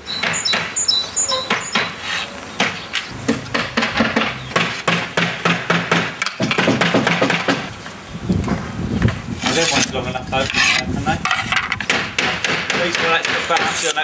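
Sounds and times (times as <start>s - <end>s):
hammer blows: 2.6s - 7.7s.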